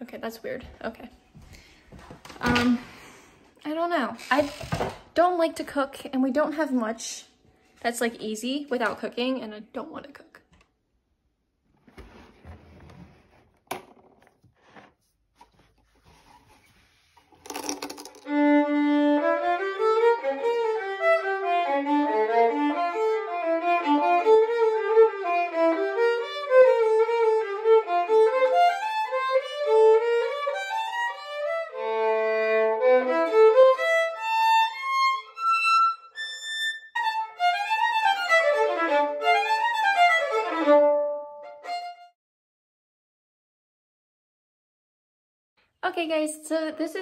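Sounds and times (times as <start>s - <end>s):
solo violin bowed: 18.3s - 42.1s.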